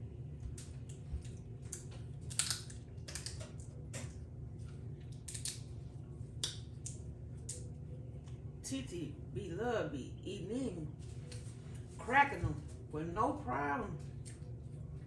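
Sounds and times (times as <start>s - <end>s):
steady low hum: 0.0s - 15.0s
crab shells cracking: 0.9s - 4.1s, 5.0s - 5.7s.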